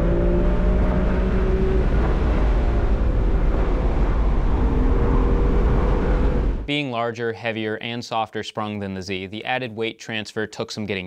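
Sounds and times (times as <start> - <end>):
car engine running: 0.0 - 6.7
wind and road noise: 0.0 - 6.7.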